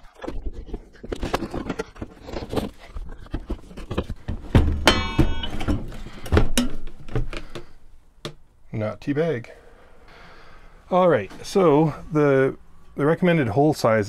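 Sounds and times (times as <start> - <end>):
loud thunk: 4.6 - 5.8.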